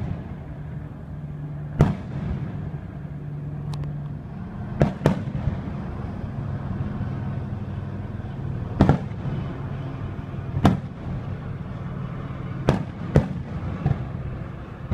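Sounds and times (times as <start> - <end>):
steady low hum: 0.0 - 14.9
firework shells booming: 1.8 - 2.8, 4.8 - 5.8, 8.8 - 9.5, 10.6 - 11.2, 12.6 - 14.9.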